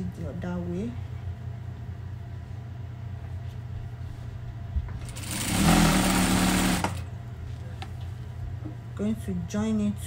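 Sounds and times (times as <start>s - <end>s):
sewing machine stitching: 5.0s - 7.0s.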